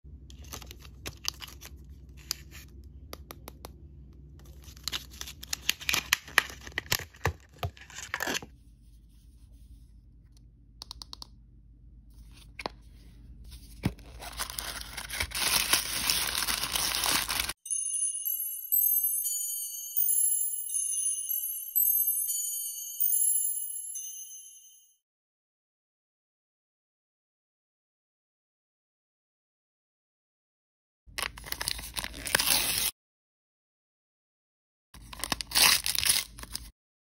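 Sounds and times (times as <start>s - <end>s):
fingernail clicks and taps: 10.8s - 11.4s
tissue paper and foil crinkling: 13.6s - 17.6s, 31.2s - 32.9s, 35.0s - 36.7s
plastic wrap crackling: 14.0s - 17.6s.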